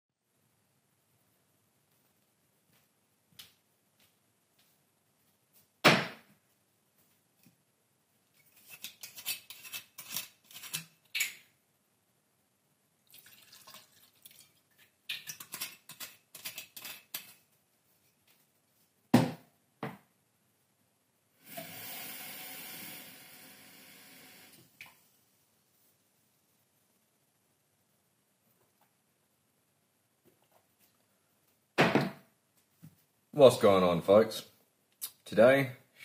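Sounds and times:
water running: 13.1 - 15.8, 21.4 - 25.1.

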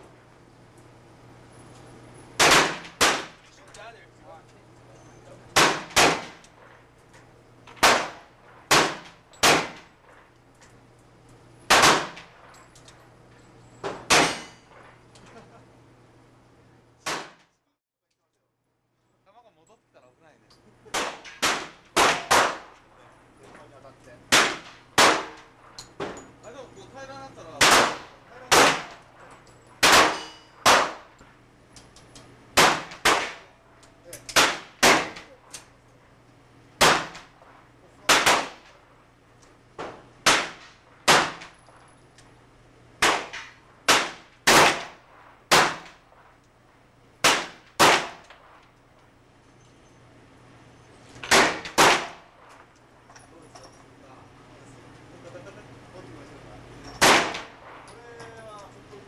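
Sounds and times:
handgun shots with echo: 2.4 - 3.4, 5.5 - 6.5, 7.7 - 10.2, 11.7 - 12.6, 13.8 - 14.9, 20.9 - 22.7, 24.3 - 25.5, 27.6 - 29.0, 29.8 - 31.1, 32.6 - 33.5, 34.2 - 35.7, 36.8 - 37.3, 38.0 - 38.8, 39.8 - 41.6, 43.0 - 46.0, 47.2 - 48.6, 51.2 - 52.3, 57.0 - 57.9.

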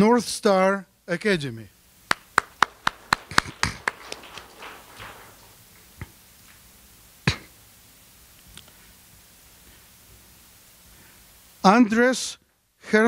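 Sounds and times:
audience applause: 2.1 - 5.6
sharp knocks: 2.1 - 5.7.

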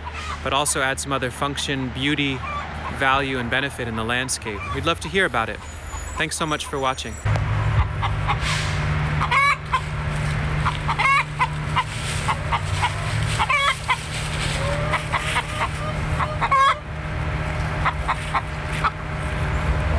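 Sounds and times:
hens clucking: 0.0 - 19.9
steady low rumble: 7.1 - 19.9.

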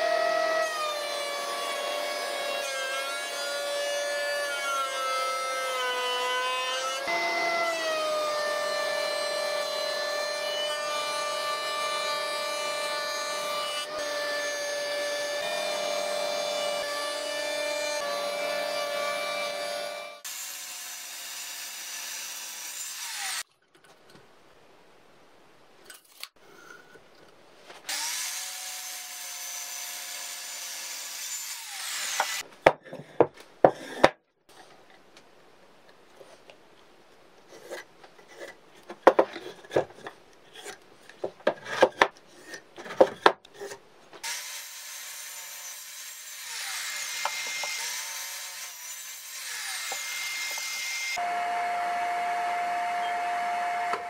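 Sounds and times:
miter saw cutting wood: 0.0 - 23.4, 27.9 - 32.4, 44.2 - 54.0.

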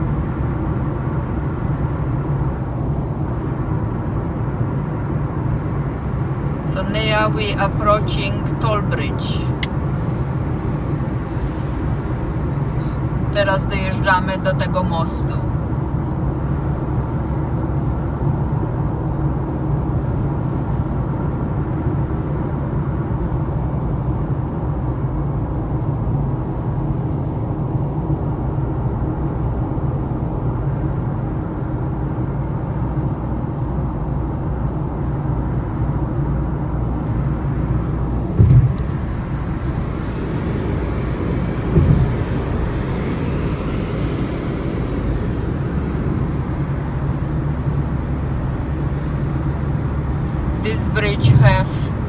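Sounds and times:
car cabin drone: 0.0 - 52.0
short thumps: 38.3 - 39.0, 41.7 - 42.3.

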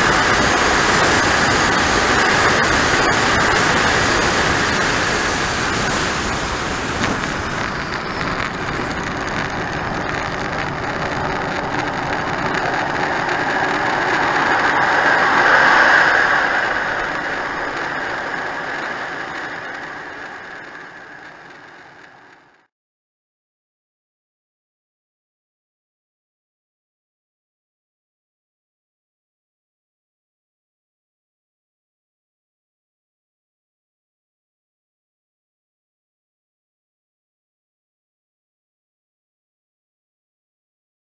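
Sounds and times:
model jet turbine rushing: 0.0 - 22.7.

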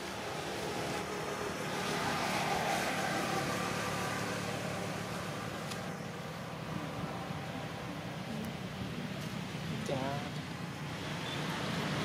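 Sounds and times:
vehicle passing by: 0.0 - 6.0.

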